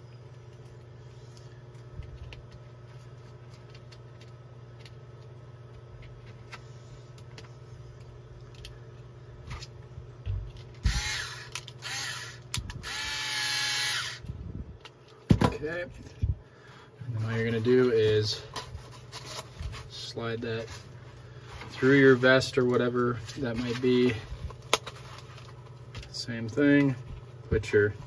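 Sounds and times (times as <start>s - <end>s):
cordless screwdriver running: 10.8s - 14.3s.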